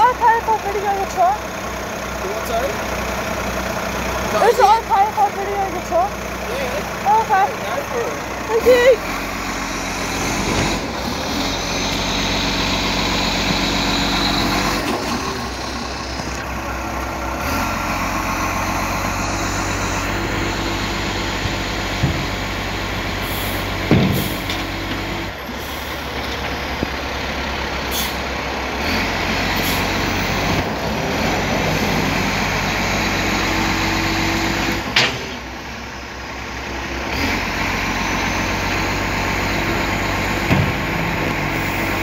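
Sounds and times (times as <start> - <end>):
garbage truck diesel engine: 0.0 - 42.0
heavy thump: 21.4 - 22.4, 23.8 - 24.6.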